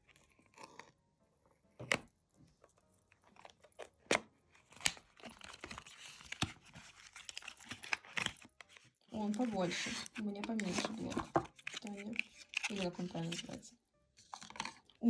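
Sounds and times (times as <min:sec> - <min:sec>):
paper and plastic crinkling: 0:02.6 - 0:15.0
cardboard snapping: 0:03.4 - 0:08.7.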